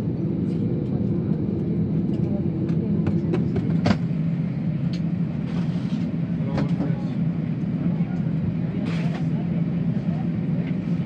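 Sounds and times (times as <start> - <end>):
airplane cabin drone: 0.0 - 11.0.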